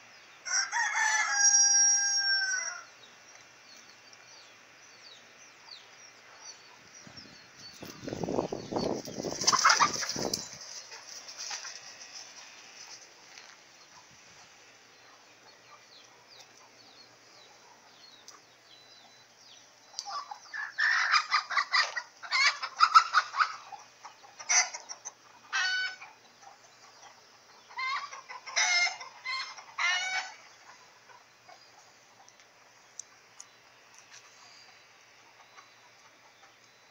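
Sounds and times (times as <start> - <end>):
chickens clucking and squawking: 0.0 - 36.9
faint chirps: 30.4 - 36.9.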